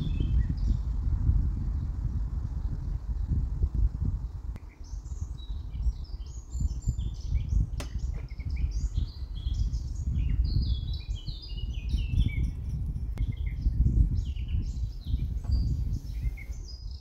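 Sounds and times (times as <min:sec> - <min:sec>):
low uneven rumble: 0:00.0 - 0:11.0
birds chirping: 0:00.0 - 0:17.0
sharp click: 0:07.8 - 0:08.3.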